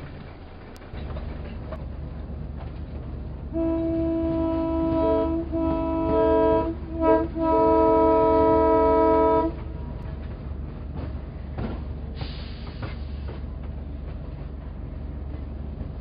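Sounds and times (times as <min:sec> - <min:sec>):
model locomotive horn blasts: 0:03.5 - 0:09.6.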